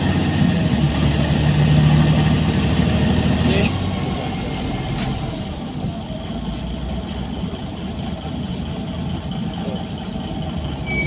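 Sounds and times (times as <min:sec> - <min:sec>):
bus engine rumble: 0:00.0 - 0:11.0
squeaks and ticks from bus body: 0:10.3 - 0:11.0.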